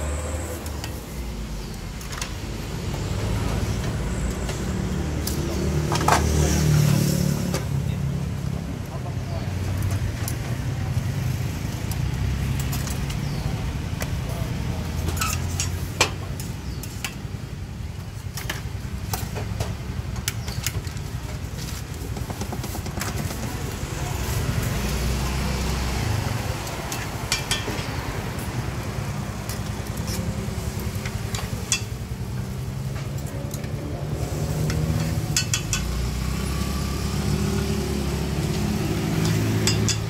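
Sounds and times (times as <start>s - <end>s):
metal utensils and pan lids clanking: 14.9s - 17.2s, 26.7s - 28.0s, 29.4s - 36.5s, 38.4s - 40.0s.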